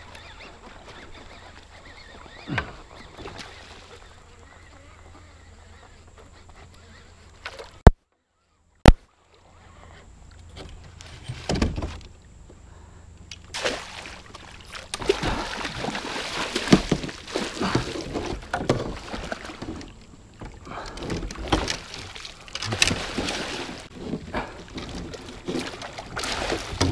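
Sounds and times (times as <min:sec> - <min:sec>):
water splashing and sloshing: 0:00.0 - 0:04.3, 0:13.3 - 0:26.9.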